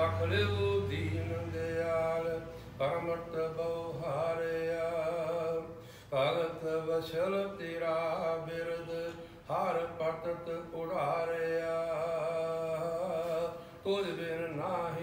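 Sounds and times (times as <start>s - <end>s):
steady held drone: 0.0s - 6.6s
man chanting melodically: 0.0s - 15.0s.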